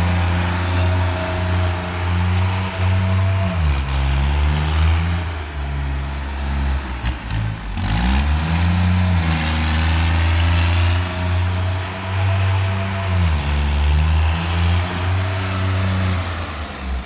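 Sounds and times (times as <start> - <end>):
tractor diesel engine under load: 0.0 - 17.0.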